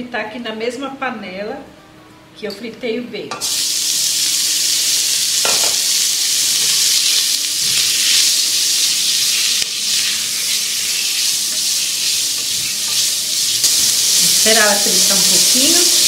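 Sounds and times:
meat sizzling in a pot: 3.4s - 16.0s
spoon scraping: 9.2s - 16.0s.

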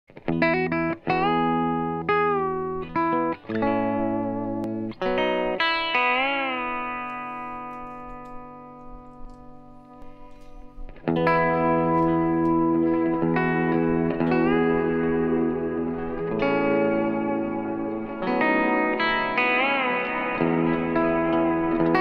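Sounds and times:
electric guitar chords with reverb: 0.1s - 22.0s.

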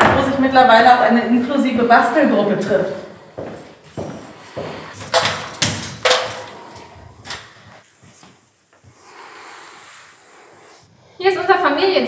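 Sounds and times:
footsteps on hard floor: 1.6s - 5.8s.

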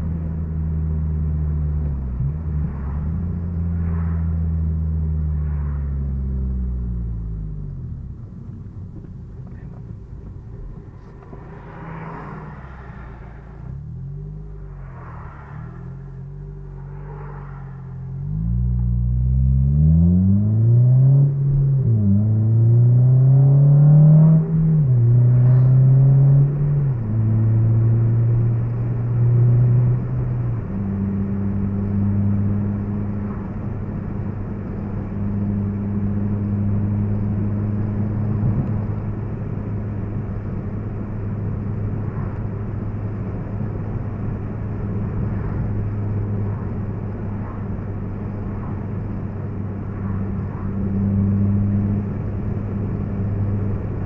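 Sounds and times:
car engine revving through gears: 18.0s - 54.0s.

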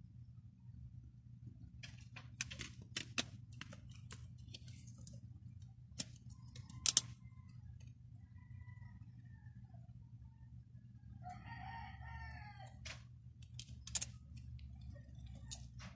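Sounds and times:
cd case clicking: 6.0s - 7.1s.

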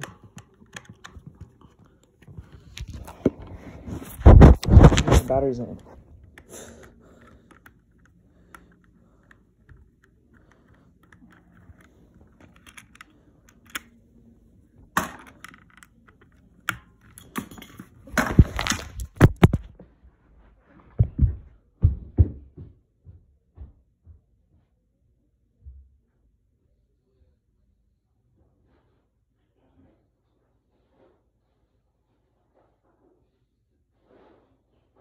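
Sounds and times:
phone handling noise on clothing: 0.0s - 14.0s.

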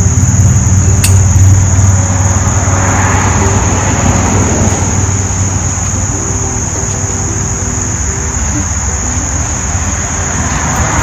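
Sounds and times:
steady low hum: 0.0s - 10.8s
high-pitched insect drone: 0.0s - 11.0s
passing vehicle engine: 0.0s - 11.0s.

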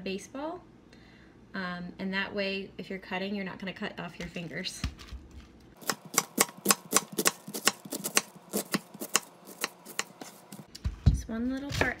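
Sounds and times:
knife chopping cabbage on board: 5.8s - 10.7s.

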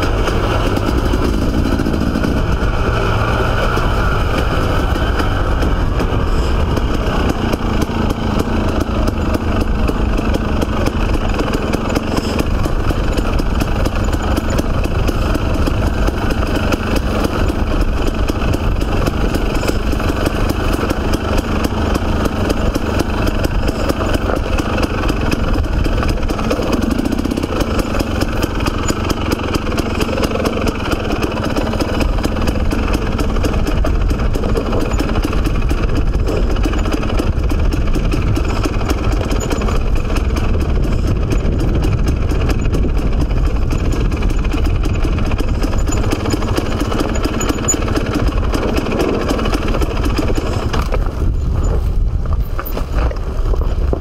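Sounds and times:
dirt bike engine running: 0.0s - 54.0s.

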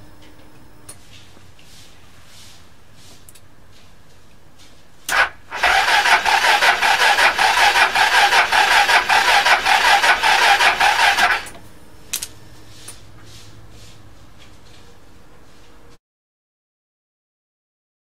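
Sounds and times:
scooter starter cranking engine: 5.1s - 11.5s.

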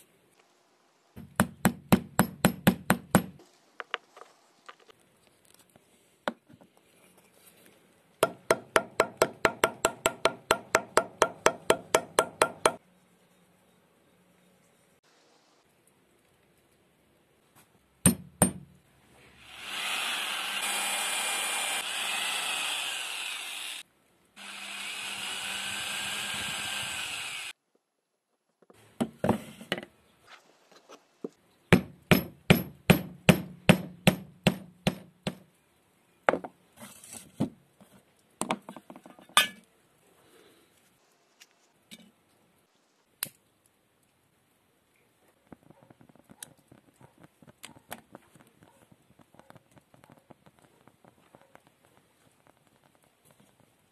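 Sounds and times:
mallet striking chisel: 1.2s - 3.4s, 8.2s - 12.8s, 18.0s - 18.7s, 31.8s - 35.4s.

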